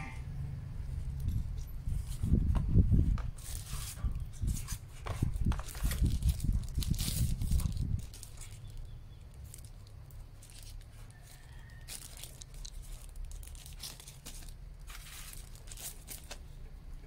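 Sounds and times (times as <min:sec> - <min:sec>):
plastic wrap crinkling: 0:03.4 - 0:16.6.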